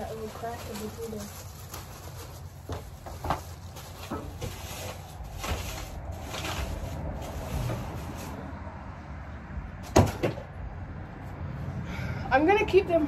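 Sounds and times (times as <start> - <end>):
household items knocking and rustling: 0.0 - 8.4, 9.8 - 10.5.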